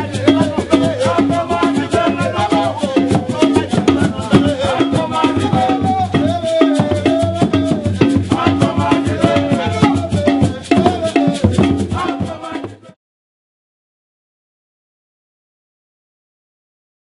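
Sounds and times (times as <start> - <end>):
hand drums: 0.0 - 13.0.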